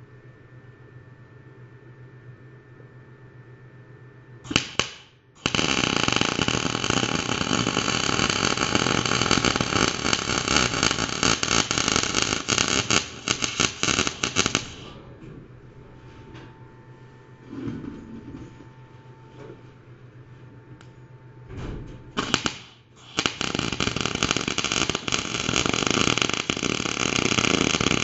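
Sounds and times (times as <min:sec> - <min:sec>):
welding arc crackling: 0:04.5 - 0:15.0, 0:22.2 - 0:28.0.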